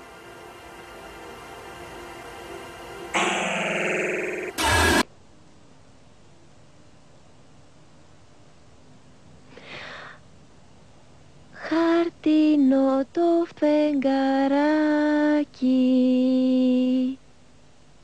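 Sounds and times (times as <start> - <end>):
soft hiss: 5.2 - 18.0
girl singing a lullaby: 11.5 - 17.3.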